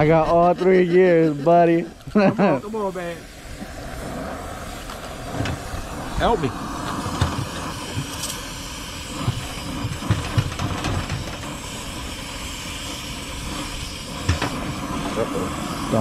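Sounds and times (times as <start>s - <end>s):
torch flame hissing: 0.0s - 16.0s.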